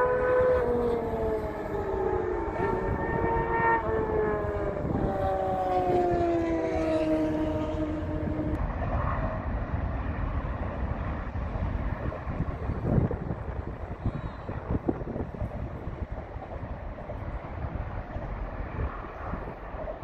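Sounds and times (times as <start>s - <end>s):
siren-like wail sliding downward: 0.0s - 9.3s
steady low rumble: 0.0s - 20.0s.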